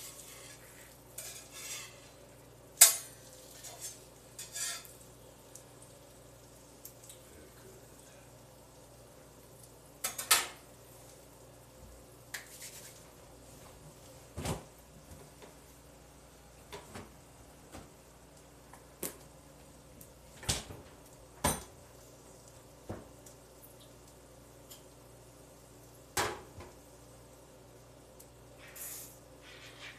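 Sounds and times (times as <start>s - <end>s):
pots and dishes clattering: 0.0s - 2.2s, 2.8s - 5.0s, 10.0s - 10.6s.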